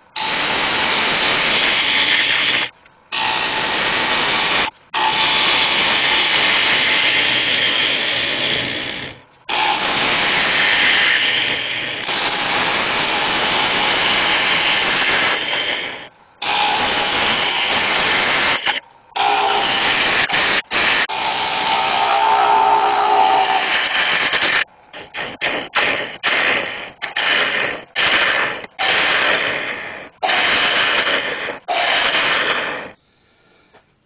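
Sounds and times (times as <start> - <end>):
hiss of wood shavings: 0.2 - 33.6
lathe tool cutting wood: 9.6 - 24.6.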